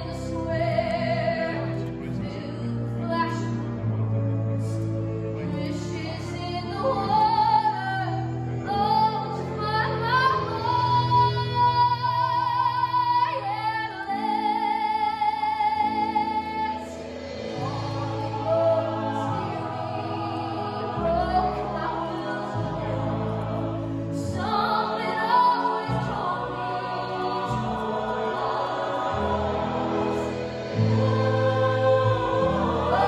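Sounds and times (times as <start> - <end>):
woman singing with vibrato: 5.6 - 23.1, 24.1 - 29.2.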